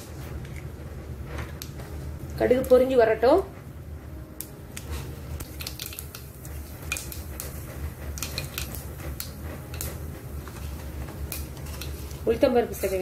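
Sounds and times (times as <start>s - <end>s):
seeds popping in hot oil: 4.8s - 13.0s.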